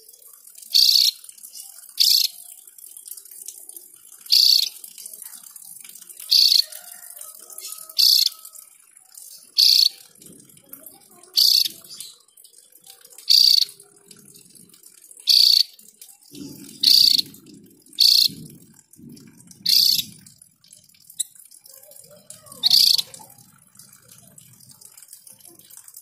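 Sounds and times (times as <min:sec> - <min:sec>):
bird calls harsh high-pitched: 0:00.7 - 0:01.2, 0:02.0 - 0:02.4, 0:04.3 - 0:04.7, 0:06.3 - 0:06.7, 0:07.6 - 0:08.4, 0:09.6 - 0:10.0, 0:11.4 - 0:12.2, 0:13.3 - 0:13.8, 0:15.3 - 0:15.8, 0:16.8 - 0:17.3, 0:18.0 - 0:18.4, 0:19.7 - 0:20.0, 0:22.5 - 0:23.2.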